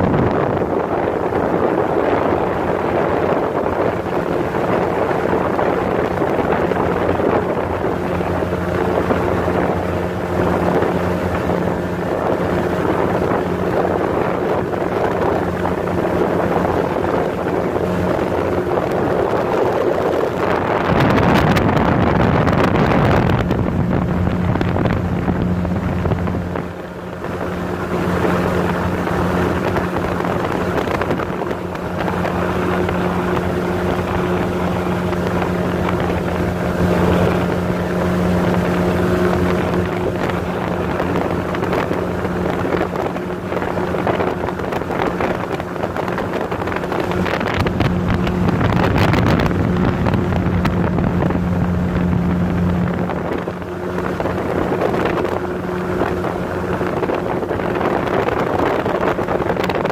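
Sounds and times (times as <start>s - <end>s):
motorboat engine running: 0.0s - 59.9s
wind buffeting microphone: 0.0s - 59.9s.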